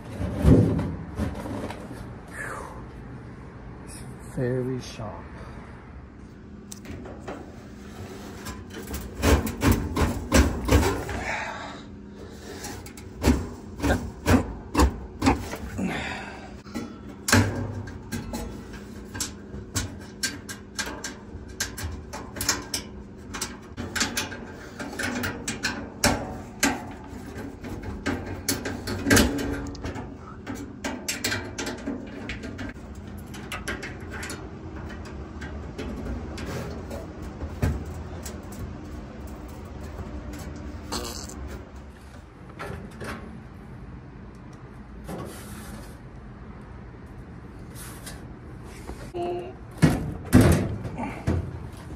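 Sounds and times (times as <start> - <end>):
sheet metal clicking and knocking: 16.6 - 38.6.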